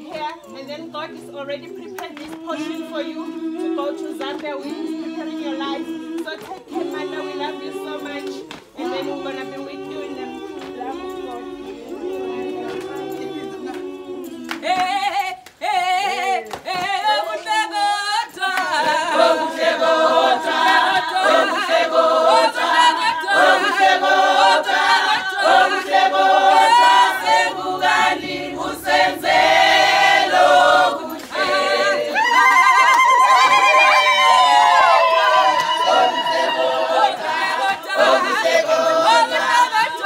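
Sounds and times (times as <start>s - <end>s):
group of people singing: 0.0s - 40.0s
handclaps: 2.0s - 2.8s, 4.1s - 5.0s, 5.7s - 7.0s, 8.1s - 9.0s, 10.5s - 11.4s, 12.2s - 22.0s, 30.3s - 40.0s.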